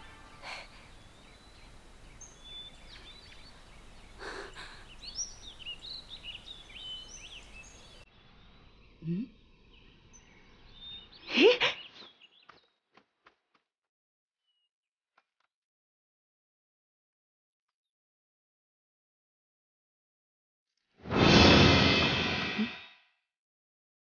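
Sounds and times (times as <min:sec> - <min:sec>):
birds chirping: 0:00.0 - 0:12.8.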